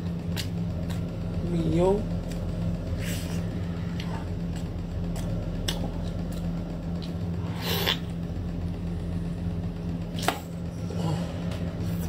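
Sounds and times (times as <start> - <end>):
steady low hum: 0.0 - 12.0
wet slurp: 7.5 - 8.1.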